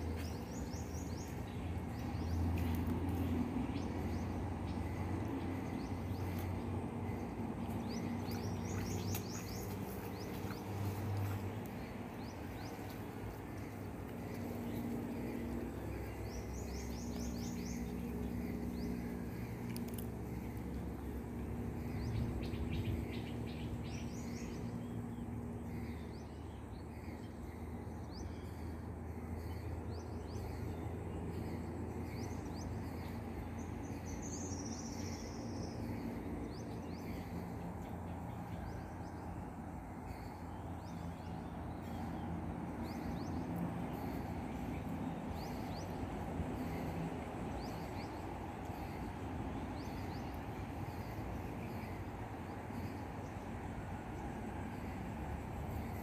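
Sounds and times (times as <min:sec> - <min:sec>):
insect calls: 0:00.0 - 0:56.0
steady low rumble: 0:00.0 - 0:56.0.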